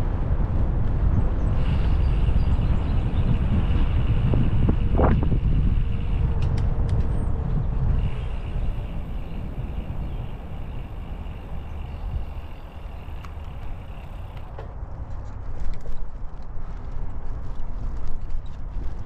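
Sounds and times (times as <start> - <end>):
wind rushing over microphone: 0.0 - 19.0
faint clicks: 13.1 - 14.7.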